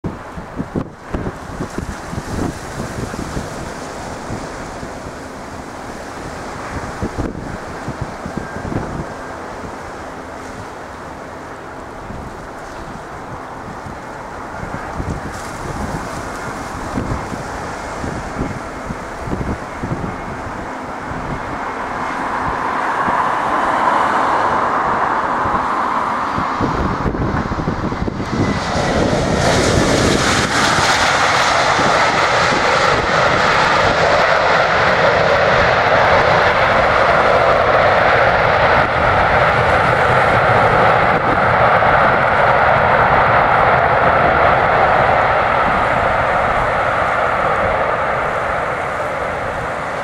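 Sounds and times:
jet engines of airliner: 0.0s - 50.0s.

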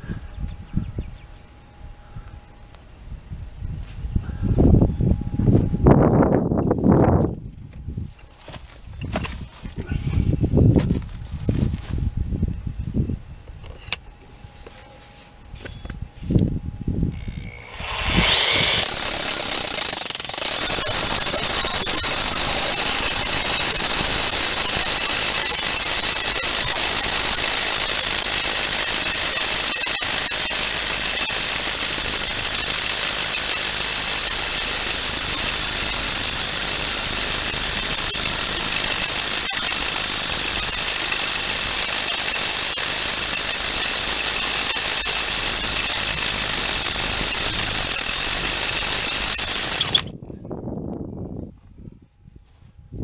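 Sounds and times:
rotary hammer drilling into stone: 17.2s - 50.1s.

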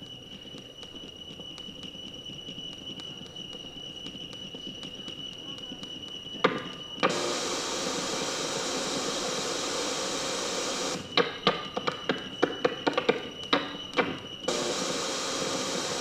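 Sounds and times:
static hiss: 7.0s - 11.3s, 14.5s - 16.0s.

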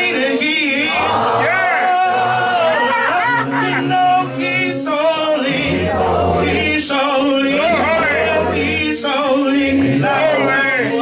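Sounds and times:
man singing into microphone: 0.0s - 11.0s
voices singing along: 0.0s - 11.0s.

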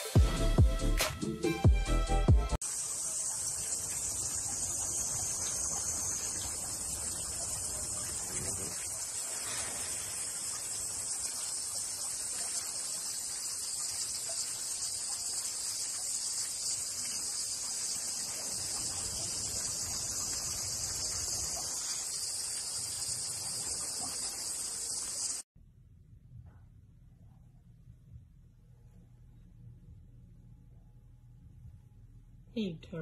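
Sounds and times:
insects chirring: 2.6s - 25.4s.

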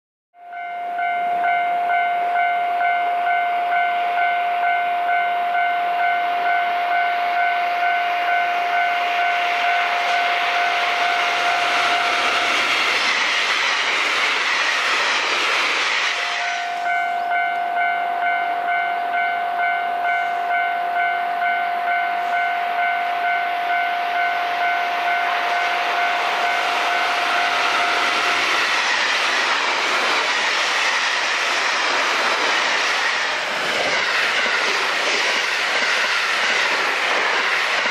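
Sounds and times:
level-crossing electronic bell: 0.4s - 12.7s, 16.2s - 28.6s
train wheels rushing on rails: 5.6s - 37.9s.

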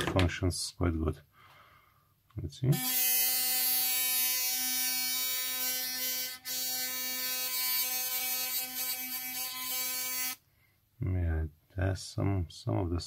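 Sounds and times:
electric toothbrush buzzing: 2.8s - 10.4s.

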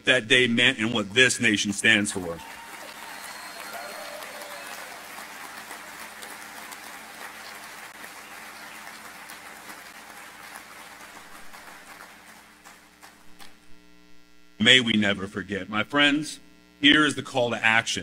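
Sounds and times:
audience applauding: 1.6s - 13.6s.

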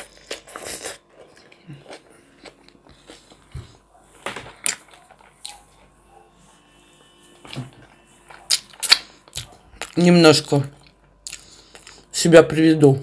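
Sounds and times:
person chewing with wet mouth smacks: 0.0s - 3.8s, 8.4s - 10.0s, 10.8s - 12.1s.

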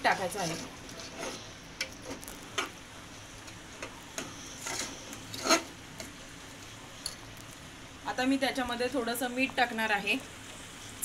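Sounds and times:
spoon scraping and knocking pot: 4.6s - 5.7s.

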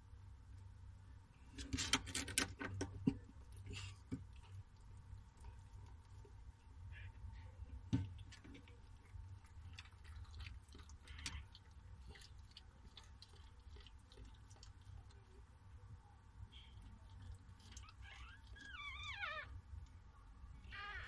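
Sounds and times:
dog licking: 8.3s - 15.4s.

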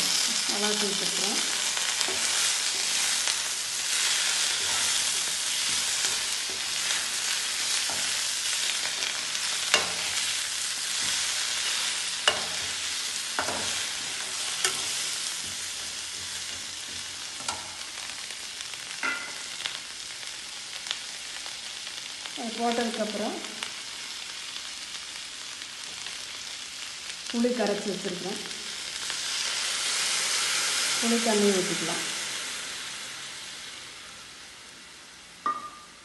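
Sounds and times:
vegetables sizzling in oil: 0.0s - 36.0s.

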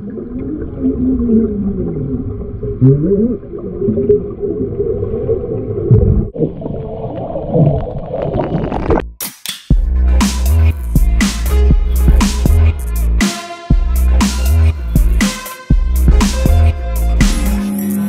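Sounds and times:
muffled voices underwater: 0.0s - 7.1s
bubbling water: 0.0s - 9.0s.

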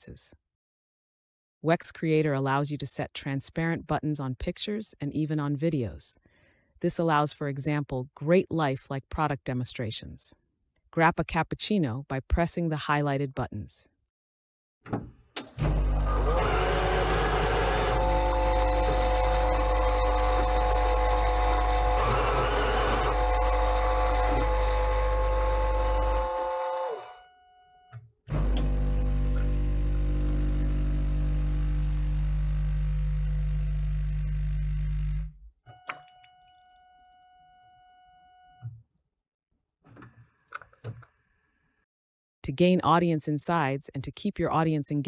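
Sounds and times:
coffee machine motor and pump hum: 15.4s - 27.0s, 28.3s - 35.3s.

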